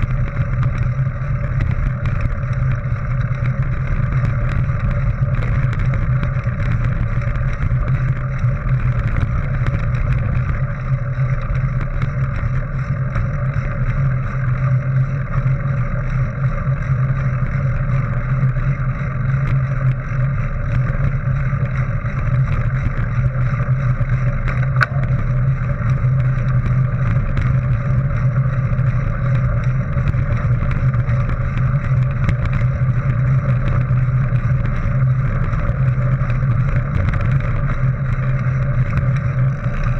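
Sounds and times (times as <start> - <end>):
wind on the camera: 0.0 - 39.9.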